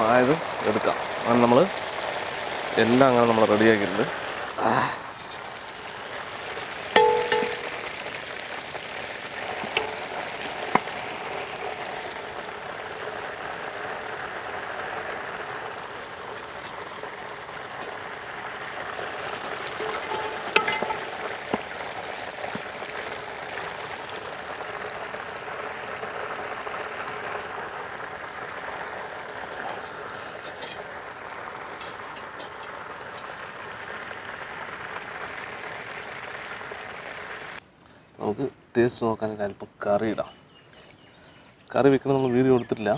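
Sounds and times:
hot oil sizzling: 0.0 - 38.0
metal skimmer clanging on pan: 7.0 - 8.0, 9.6 - 10.9, 19.8 - 21.7.

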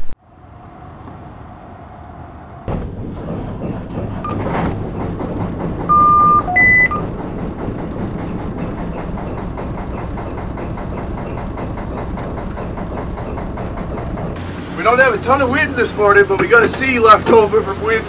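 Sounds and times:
boat engine rumble: 0.0 - 18.0
electronic beeps: 5.9 - 7.0.

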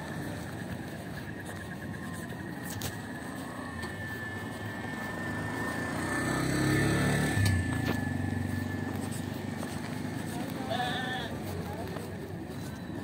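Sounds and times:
vehicle engine passing by: 3.2 - 11.8.

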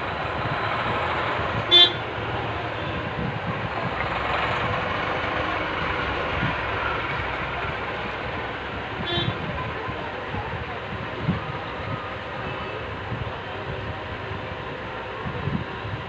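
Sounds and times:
street traffic: 0.0 - 16.0
vehicle horn toot: 1.7 - 2.0, 9.0 - 9.4.

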